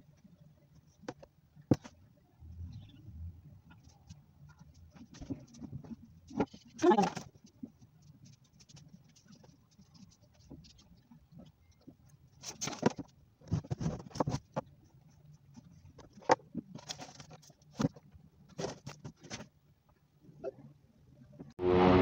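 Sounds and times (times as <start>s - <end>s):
paper rustling: 3.9s - 11.5s, 12.4s - 14.7s, 15.6s - 19.5s.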